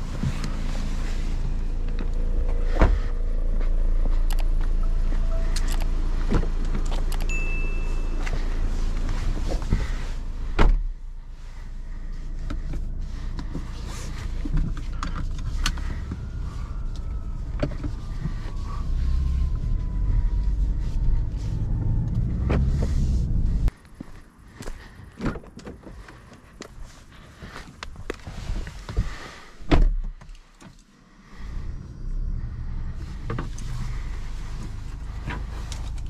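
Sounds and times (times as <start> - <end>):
car engine rumble inside cabin: 0.0 - 24.4, 25.0 - 36.0
car door opening: 5.3 - 11.0, 29.6 - 30.8
car door shutting: 9.0 - 11.0, 29.6 - 30.2.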